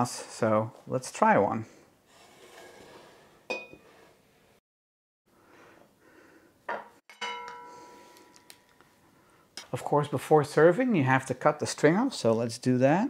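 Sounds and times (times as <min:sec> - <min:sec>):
metal tongs clinking on dishware: 0:07.1 - 0:07.8.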